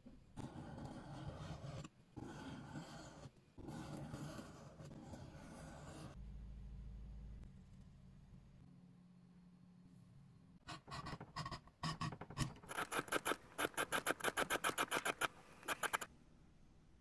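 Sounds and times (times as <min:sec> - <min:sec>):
blade scraping leather: 0:12.6 - 0:16.1.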